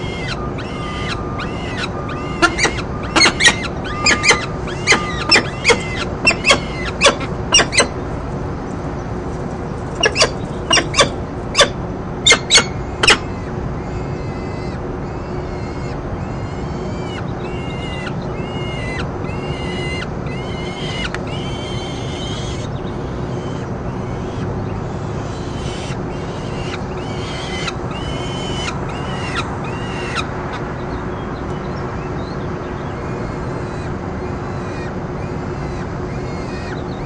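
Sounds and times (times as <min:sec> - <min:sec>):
falcon high-pitched calls: 0:00.0 - 0:08.0, 0:10.0 - 0:22.7, 0:25.2 - 0:30.3.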